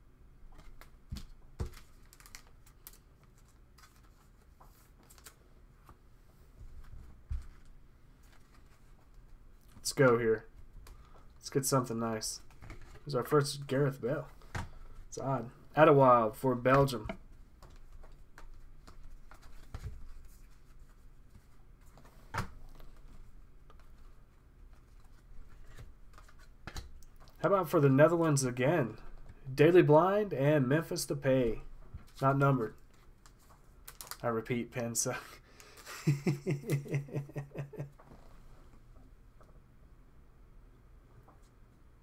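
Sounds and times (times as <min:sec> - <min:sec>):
cards being flipped through: 0:00.5 - 0:06.0, 0:24.7 - 0:27.4.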